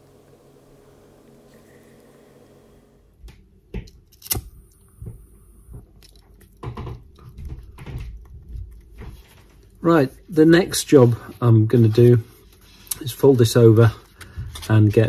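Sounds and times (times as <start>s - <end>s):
gas hissing: 0.0s - 3.2s.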